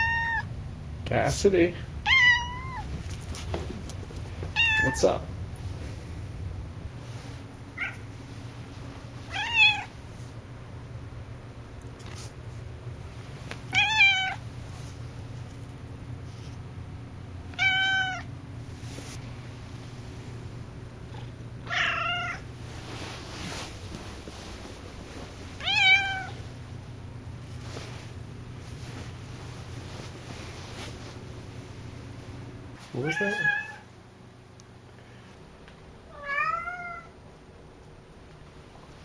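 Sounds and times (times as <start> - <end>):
cat meowing loudly: 0.0 - 0.5, 2.0 - 2.8, 4.5 - 5.0, 9.3 - 9.9, 13.7 - 14.4, 17.5 - 18.3, 21.6 - 22.4, 25.6 - 26.4, 33.0 - 33.8, 36.1 - 37.1.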